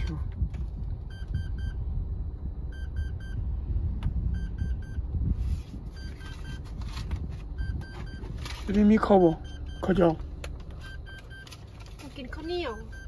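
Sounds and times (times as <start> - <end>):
low cabin rumble: 0.0 - 13.0
car warning chime beeping: 1.0 - 1.8, 2.7 - 3.5, 4.3 - 5.1, 5.9 - 6.6, 7.6 - 13.0
banknotes rustling: 5.4 - 9.1, 10.6 - 12.9.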